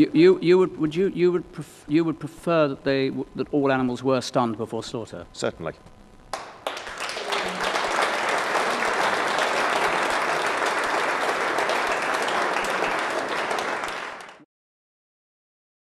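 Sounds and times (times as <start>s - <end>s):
audience applauding: 6.3s - 14.4s.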